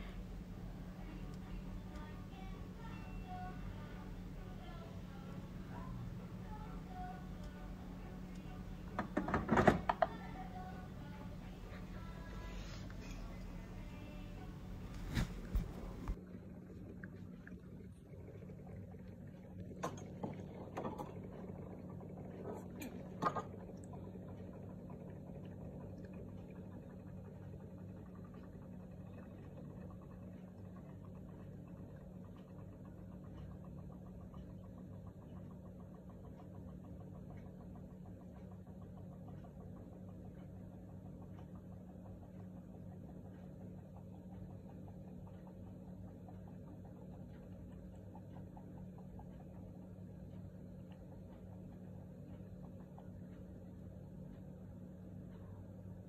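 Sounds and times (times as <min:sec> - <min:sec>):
faint rapid ticking: 0:00.0 - 0:15.0, 0:17.1 - 0:56.0
low hum: 0:00.0 - 0:56.0
plastic clicks and knocks: 0:09.0 - 0:10.2.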